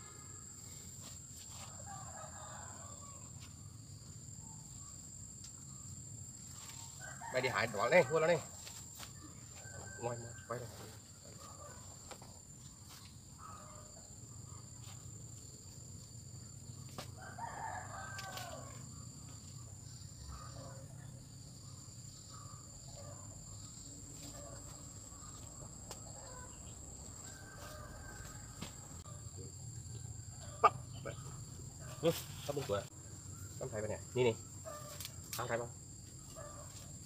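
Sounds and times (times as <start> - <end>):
rooster crowing: 1.6 - 3.3, 6.9 - 8.6, 9.5 - 10.7, 17.2 - 19.2, 25.7 - 29.3, 29.9 - 32.1.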